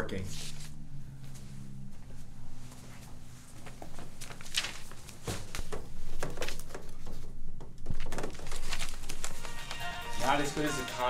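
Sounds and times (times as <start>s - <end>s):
paper sheets rustling: 3.6s - 7.3s, 8.1s - 11.0s.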